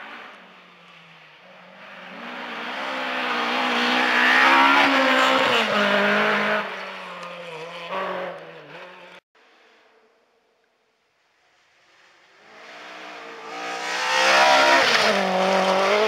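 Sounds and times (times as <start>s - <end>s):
rally car engine revving past: 12.4s - 16.0s.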